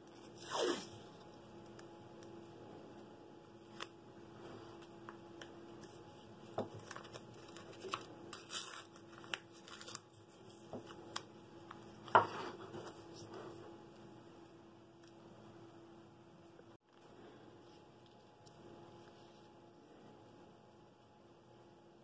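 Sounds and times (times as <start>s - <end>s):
tape crinkling and clicking: 4.8s - 12.1s.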